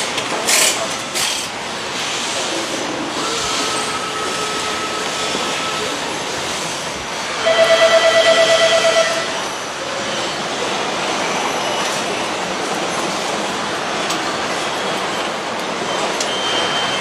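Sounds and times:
pulsing buzzer tone: 0:07.4 - 0:09.5.

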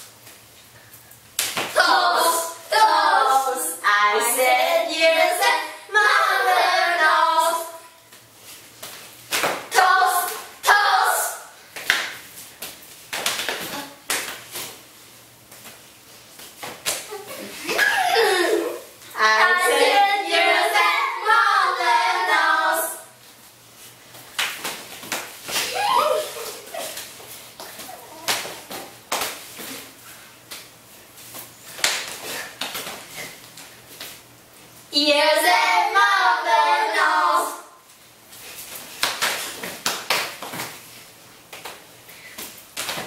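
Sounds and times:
hands clapping: 0:11.8 - 0:12.2, 0:24.3 - 0:25.7, 0:39.0 - 0:40.8.

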